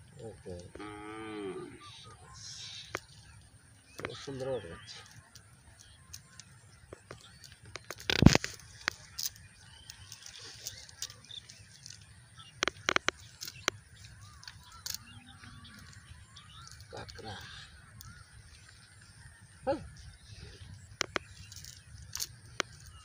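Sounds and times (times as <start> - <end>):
net rustling and crackling: 5.0 - 17.0, 21.0 - 23.0.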